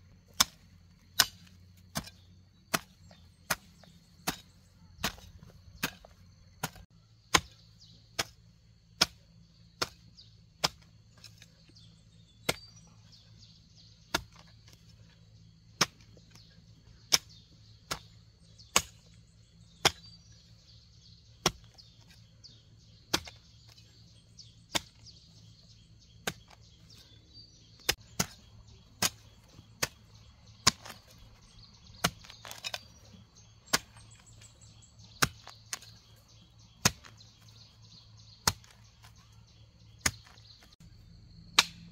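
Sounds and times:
hoe chopping into soil: 0.2s - 40.8s, 41.5s - 41.9s.

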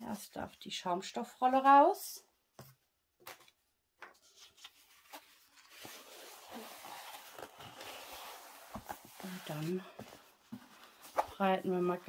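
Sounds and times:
soft rustle of canvas unrolling: 4.7s - 12.0s.

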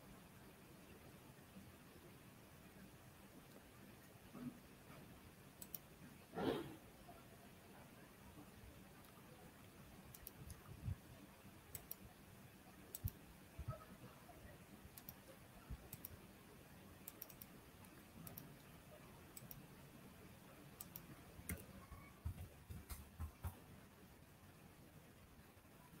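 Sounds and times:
computer mouse clicks: 5.6s - 6.6s, 10.1s - 10.8s, 11.7s - 12.1s, 12.9s - 13.9s, 14.9s - 16.2s, 17.0s - 19.7s, 20.8s - 23.6s.

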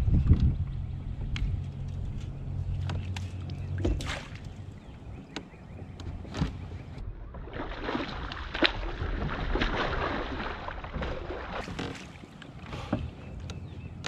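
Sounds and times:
water splashing around kayak: 1.9s - 14.0s.

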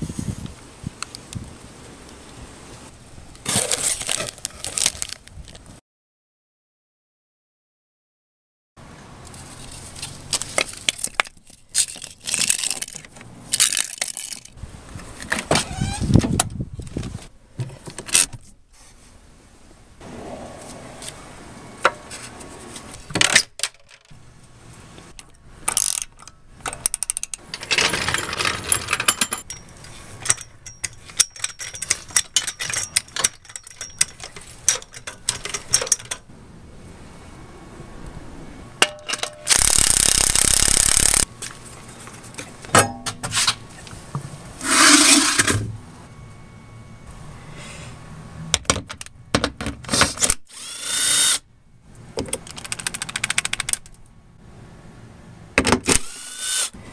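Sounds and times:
metal clinks and scrapes: 25.7s - 36.3s
cordless impact wrench running: 39.5s - 41.3s, 56.0s - 56.7s.

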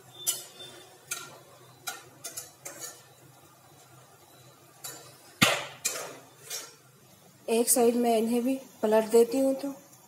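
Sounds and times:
metal spoon scraping a pan: 0.0s - 4.0s, 4.8s - 6.9s
sharp knock: 5.4s - 5.8s.

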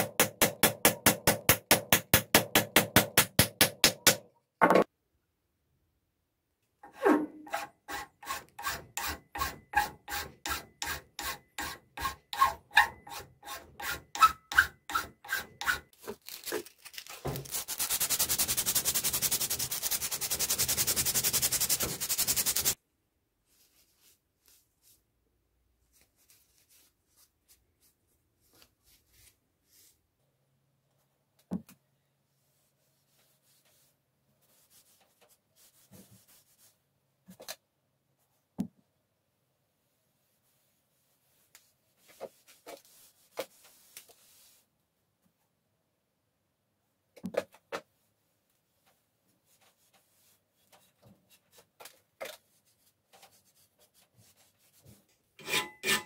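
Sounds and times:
file rasping on wood: 7.5s - 15.9s, 55.4s - 56.0s
sanding wood: 17.5s - 22.8s.

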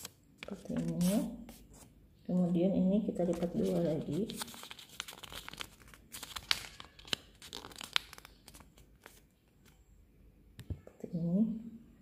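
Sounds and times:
paper crackles: 3.2s - 9.8s
paper rustling while folded: 3.2s - 9.8s.

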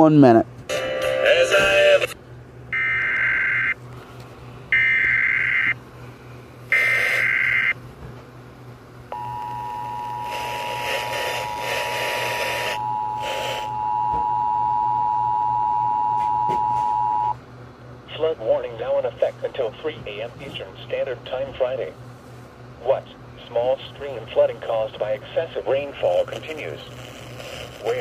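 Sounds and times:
data tone bursts: 6.7s - 7.8s, 9.1s - 17.4s
two-tone attention signal: 9.1s - 17.4s.

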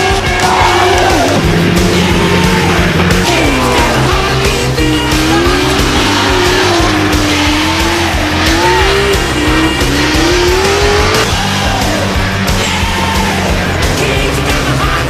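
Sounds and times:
car engines at high revs: 0.0s - 15.0s
rock music: 0.0s - 15.0s.

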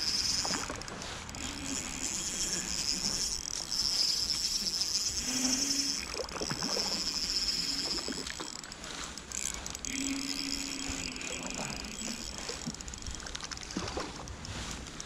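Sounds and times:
fishing reel whirring: 0.0s - 15.0s.

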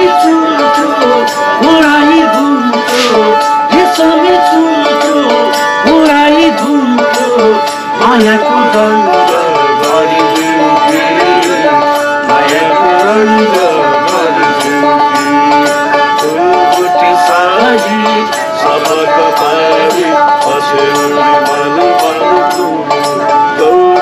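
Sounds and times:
bowed fiddles playing folk tune: 0.0s - 24.0s
person singing: 0.0s - 24.0s.

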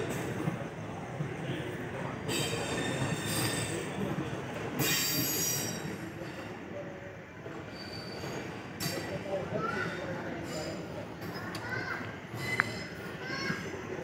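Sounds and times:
train rumble: 0.0s - 14.0s
metallic wheel squeals: 2.3s - 4.0s, 4.8s - 6.0s, 7.7s - 8.5s, 12.3s - 13.1s.

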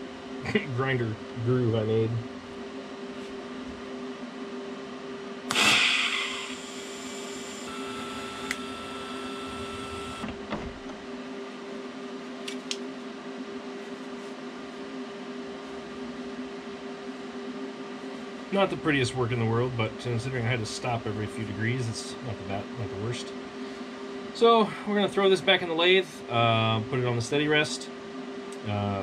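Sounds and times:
steady hum: 0.0s - 29.0s
thin high whine: 5.5s - 10.3s.

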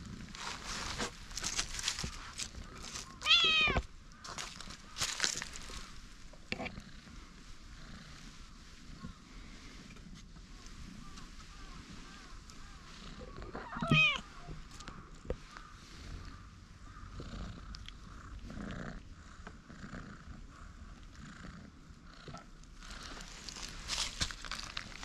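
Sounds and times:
cat meowing: 3.2s - 3.9s, 13.6s - 14.3s
cat purring: 6.5s - 9.8s, 12.0s - 23.5s.

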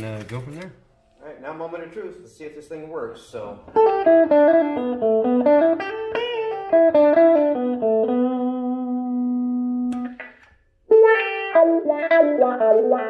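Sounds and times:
electric guitar with wah pedal: 3.7s - 13.0s.

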